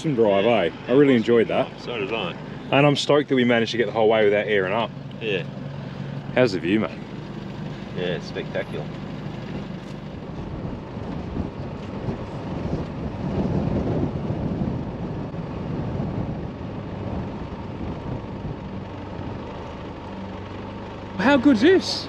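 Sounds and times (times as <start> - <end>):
vehicle engine running: 0.0 - 22.0
wind noise on microphone: 10.1 - 19.5.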